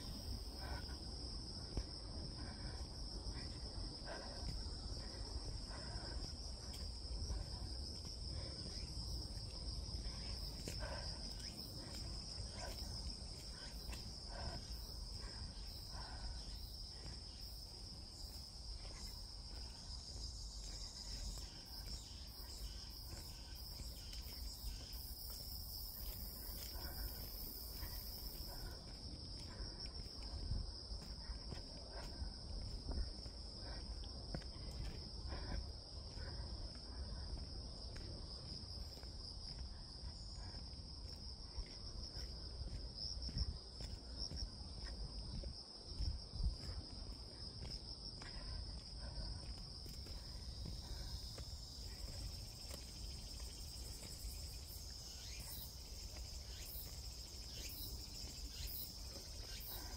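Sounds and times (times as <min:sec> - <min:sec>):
insects buzzing: 0:49.0 - 0:59.9.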